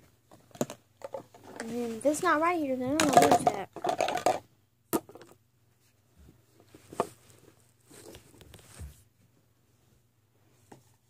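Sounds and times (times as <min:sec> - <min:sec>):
rummaging through small objects: 0:02.9 - 0:04.4.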